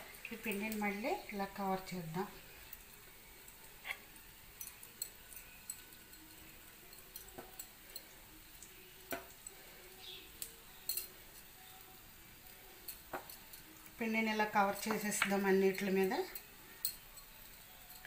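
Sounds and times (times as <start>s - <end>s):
spoon scraping pan: 3.5s - 8.1s.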